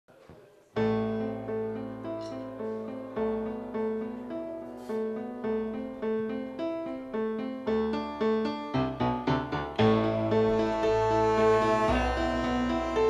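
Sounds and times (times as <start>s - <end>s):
electronic keyboard chords: 5.5s - 13.0s.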